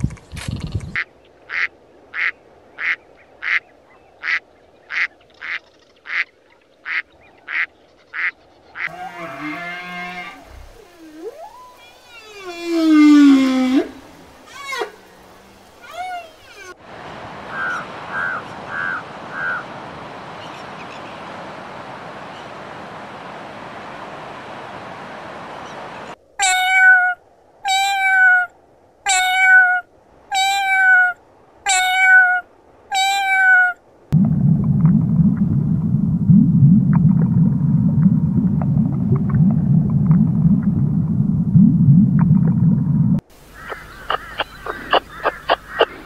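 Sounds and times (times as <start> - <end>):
faint crackles: 8.8 - 16.8, 34.1 - 46.0
steady hiss: 8.9 - 26.4, 43.2 - 46.0
crow cawing: 17.5 - 19.7, 43.5 - 46.0
cat meowing: 26.4 - 33.8
low underwater rumble: 34.2 - 43.2.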